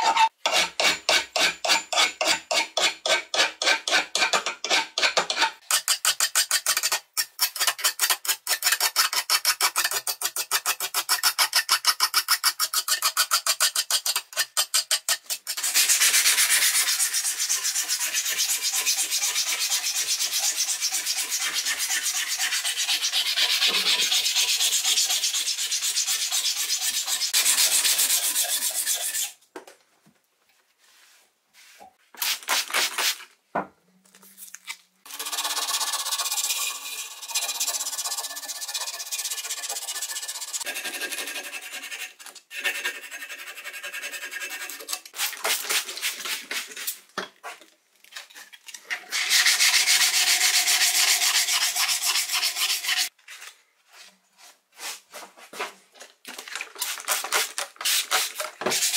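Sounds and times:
sanding rusty steel: 0:15.2 - 0:29.4, 0:35.1 - 0:44.9, 0:49.1 - 0:53.1.

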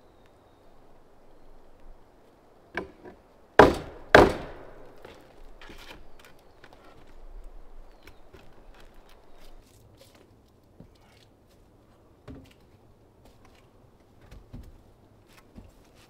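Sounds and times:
knocks and scuffs on wooden roof: 0:12.2 - 0:12.7, 0:13.3 - 0:16.0.

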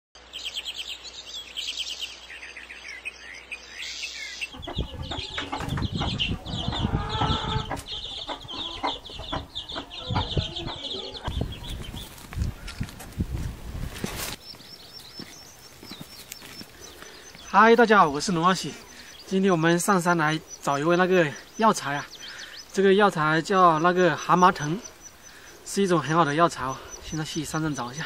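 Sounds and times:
rapid high chirping: 0:03.7 - 0:12.1
chickens clucking: 0:04.4 - 0:12.8, 0:14.6 - 0:28.0
knocks and thumps: 0:04.6 - 0:06.4.

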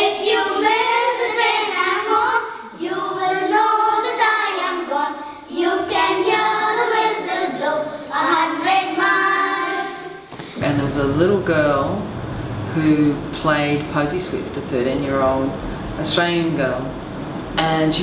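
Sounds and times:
girls singing in unison: 0:00.0 - 0:10.6.

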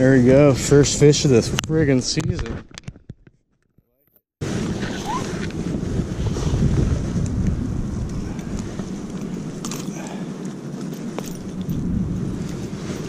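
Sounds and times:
wind buffeting microphone: 0:04.4 - 0:13.0.

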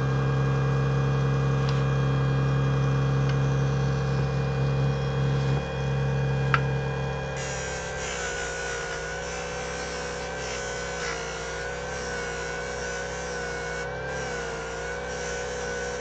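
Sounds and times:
disc sander motor whining: 0:04.9 - 0:16.0.

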